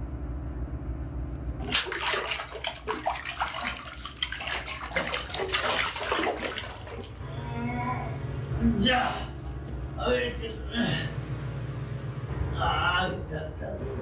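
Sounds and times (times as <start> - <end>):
water splashing in a bathtub: 1.6 - 7.2.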